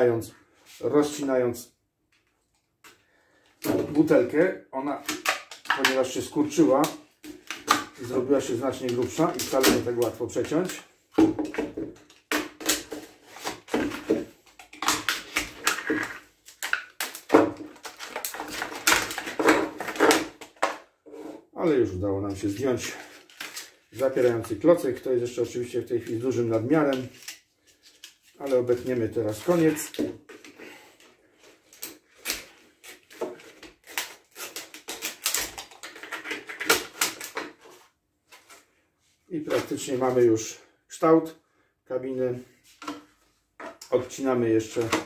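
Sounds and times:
knife cutting crackling plastic: 5.0s - 10.8s, 12.0s - 20.8s, 31.6s - 37.7s
utility knife cutting plastic: 31.7s - 37.5s.

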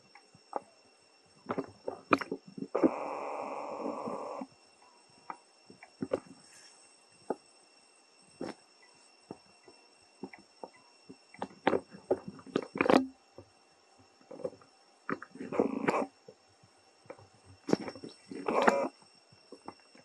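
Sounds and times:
high-pitched insect drone: 0.0s - 20.0s.

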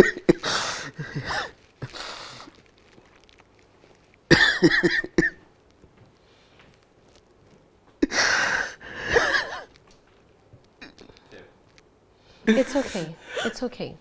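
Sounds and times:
coughing breaths: 0.0s - 2.7s, 8.0s - 9.8s.

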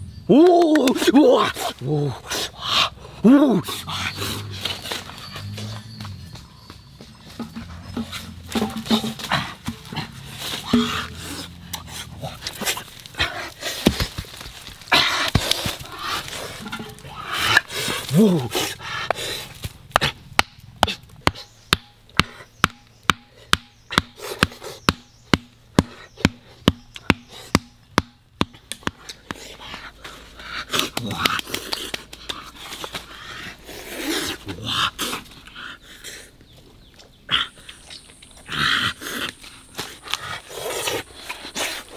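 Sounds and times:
rustling of pots and leaves: 0.0s - 21.7s, 28.6s - 41.9s
stone knocking wooden stakes: 7.3s - 11.8s, 13.7s - 18.2s, 19.1s - 29.4s.

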